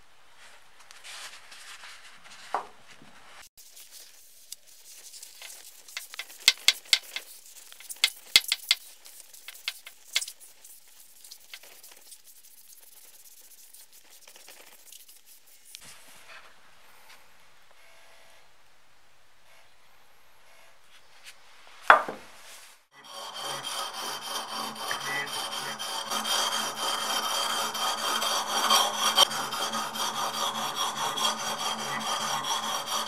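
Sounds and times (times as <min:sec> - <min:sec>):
rag rubbing on metal: 0:03.7 - 0:15.8, 0:23.0 - 0:33.0.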